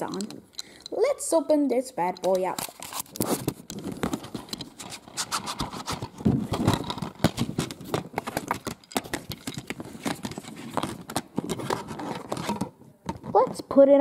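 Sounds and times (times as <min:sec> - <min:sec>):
plastic case clicks and knocks: 0:05.9 - 0:13.8.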